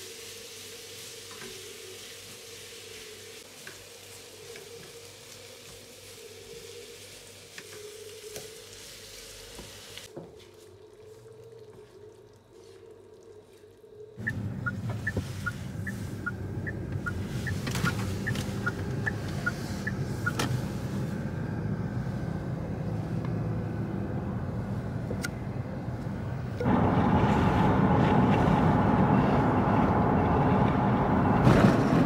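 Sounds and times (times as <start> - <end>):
stirring in a frying pan: 0.0 - 12.9
car road and engine noise: 14.2 - 32.0.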